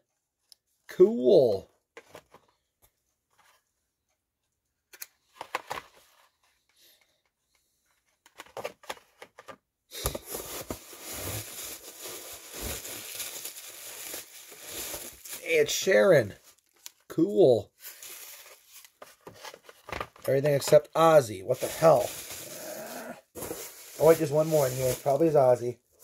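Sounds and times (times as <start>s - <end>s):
bubble wrap crinkling: 10.2s - 16.9s, 17.8s - 19.0s, 21.5s - 25.4s.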